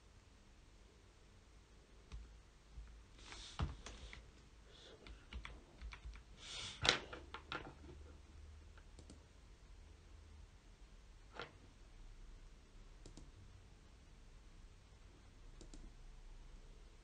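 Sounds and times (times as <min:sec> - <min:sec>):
computer keyboard typing: 0:04.9 - 0:06.3.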